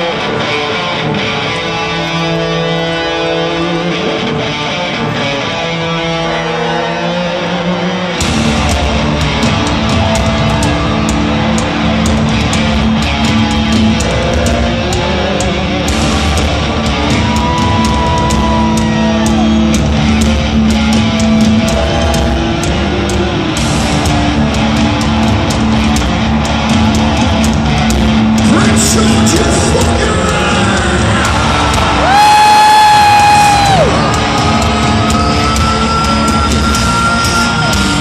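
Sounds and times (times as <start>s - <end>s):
electric guitar: 0.0s - 38.0s
heavy metal band playing live: 0.0s - 38.0s
drums with crashing cymbals: 8.2s - 38.0s.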